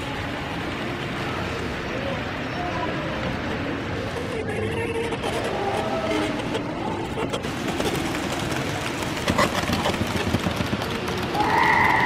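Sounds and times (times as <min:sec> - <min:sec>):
model trains clattering on track: 0:07.4 - 0:12.0.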